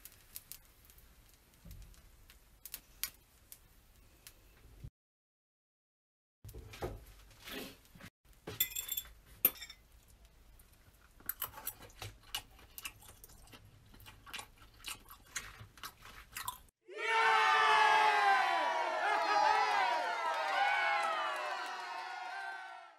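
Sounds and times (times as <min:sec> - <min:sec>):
crunchy chewing: 0:11.3 - 0:16.7
crowd cheering: 0:16.8 - 0:22.9.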